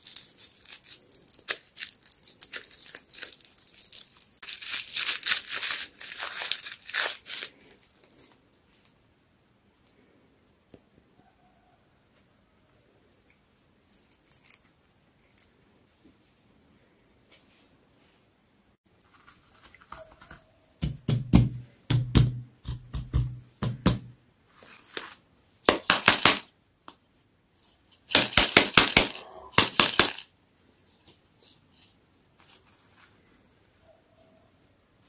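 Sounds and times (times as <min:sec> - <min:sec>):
plastic clicks and crinkles: 0:00.0 - 0:09.0, 0:13.9 - 0:15.5.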